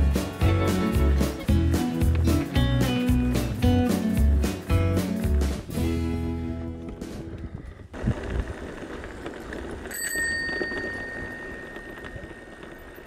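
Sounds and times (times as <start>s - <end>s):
bicycle bell ringing: 9.8s - 13.0s.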